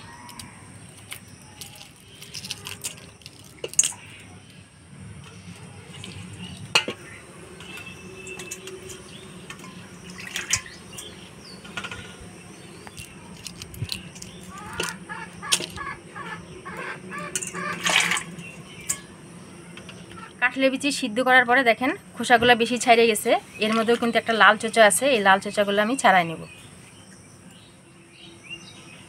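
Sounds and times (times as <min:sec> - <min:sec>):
water: 0:05.5 - 0:11.1, 0:14.6 - 0:19.1.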